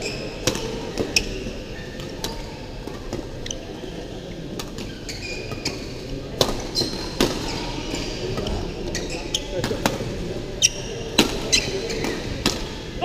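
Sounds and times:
shoes squeaking on floor: 0.0s - 2.6s, 4.8s - 9.6s, 10.6s - 12.2s
busy sports hall background: 0.0s - 13.0s.

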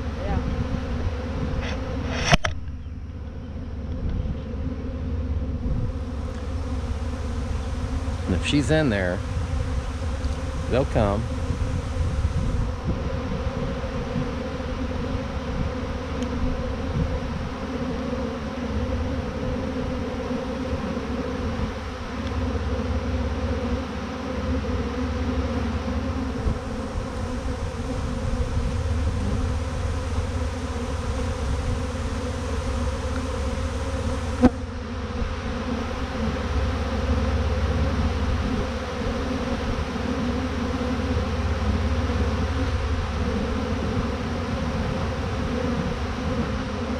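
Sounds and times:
bee swarm buzzing: 0.0s - 46.9s
sharp click: 1.6s - 2.8s.

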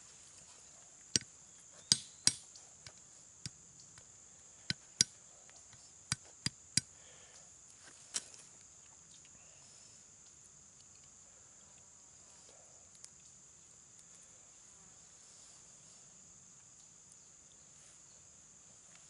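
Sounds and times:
steel head striking nuts on rock: 1.2s - 2.4s.

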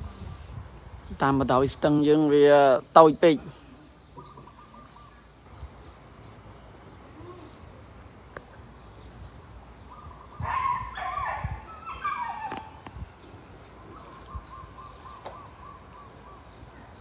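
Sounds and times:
high yelping animal calls: 10.0s - 12.9s.

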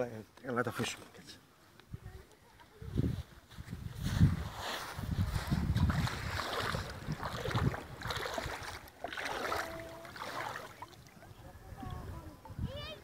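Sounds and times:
wind rumbling on microphone: 1.9s - 13.0s
seawater sloshing around hand: 4.0s - 11.2s.

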